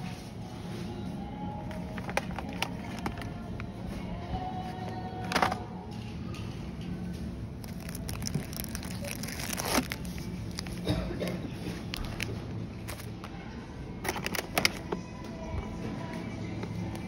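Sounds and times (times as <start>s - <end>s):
plastic packaging crinkling: 1.7s - 3.5s, 7.6s - 10.9s, 11.8s - 13.2s, 14.0s - 15.0s.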